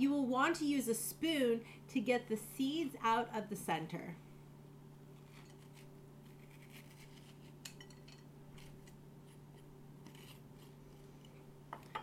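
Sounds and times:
steady low hum: 0.0 - 12.0
metal spoon scraping squash: 5.2 - 11.4.

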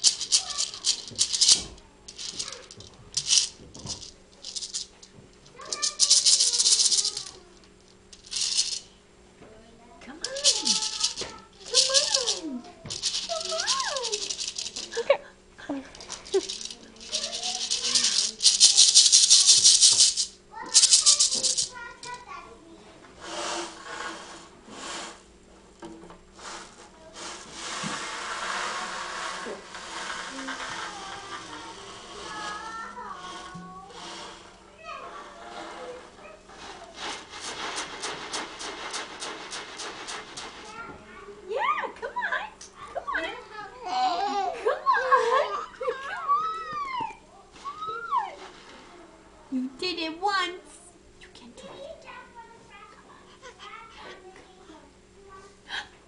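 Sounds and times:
rattle shaken: 0.0 - 9.0, 10.2 - 22.4, 28.1 - 34.6, 36.6 - 40.9.

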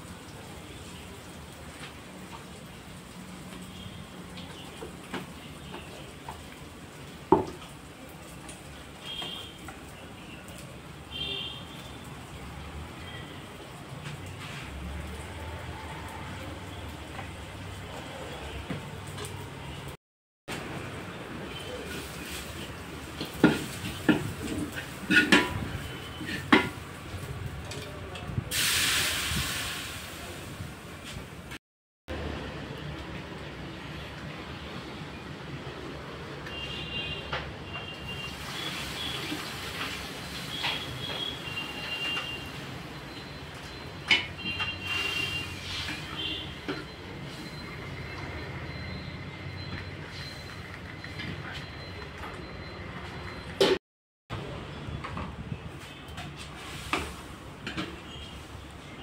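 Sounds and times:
metal spoon stirring in pan: 23.3 - 26.8
steam sizzling hiss: 28.5 - 30.6, 38.1 - 42.6, 44.8 - 46.5, 56.6 - 57.4.

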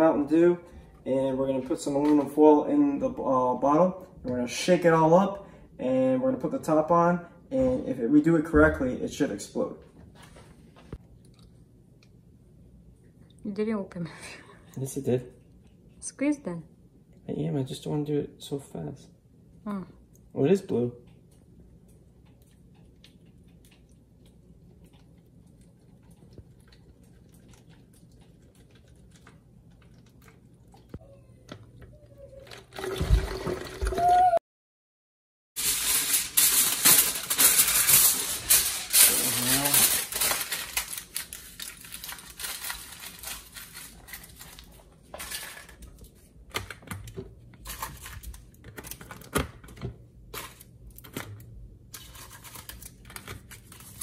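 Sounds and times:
liquid poured into plastic bottle: 32.4 - 34.0
aluminium foil crinkling: 35.6 - 46.9, 47.6 - 49.4, 50.3 - 54.0.

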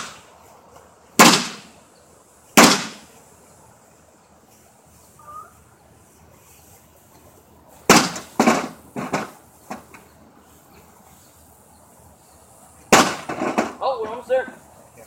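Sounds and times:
clattering knocks: 12.9 - 14.2.

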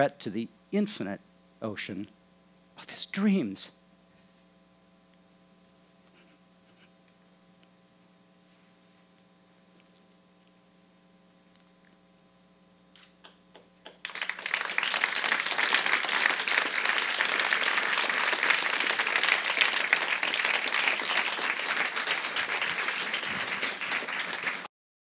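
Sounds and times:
audience applause: 14.0 - 24.7.

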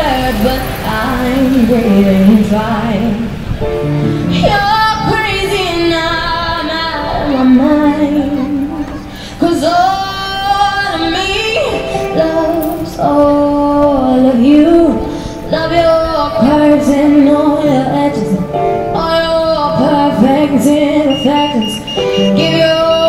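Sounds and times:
electronic keyboard: 0.0 - 23.0
girl singing into microphone: 4.2 - 23.0.

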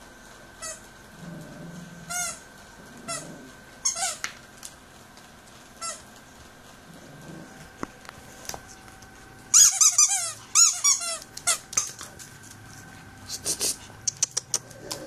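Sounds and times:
rubber dog toy squeaking: 9.6 - 11.9.

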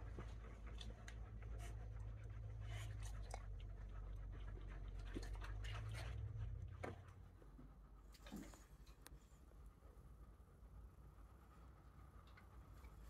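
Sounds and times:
dogs panting: 0.0 - 8.6
low steady hum: 0.0 - 13.0.

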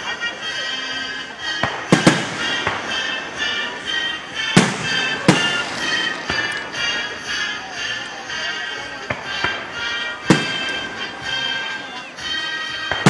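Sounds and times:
music: 0.0 - 13.0
firework shells bursting: 1.6 - 7.4.

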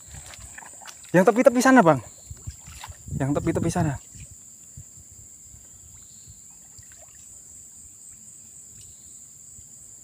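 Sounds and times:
shallow water lapping: 0.0 - 4.4, 5.8 - 7.6
steady high-pitched hiss: 0.0 - 10.0.

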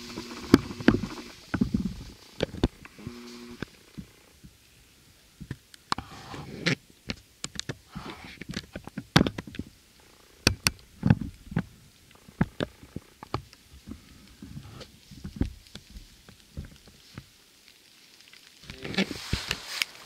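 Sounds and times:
footsteps crunching dry leaves: 17.0 - 20.0.

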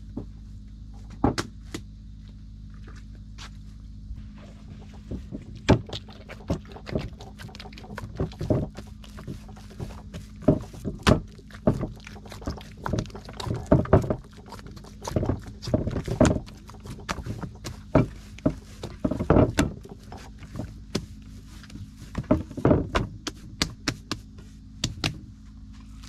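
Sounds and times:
dough slapping against clay dish: 4.6 - 25.2.

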